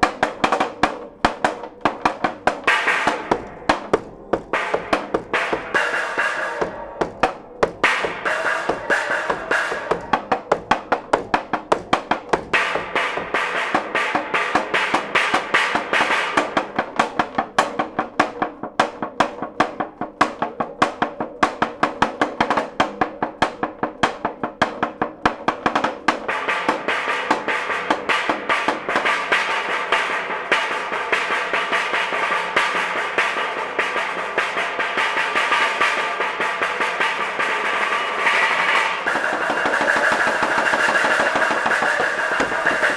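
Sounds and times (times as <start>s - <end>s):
mallets striking wooden panels: 0.0s - 42.9s.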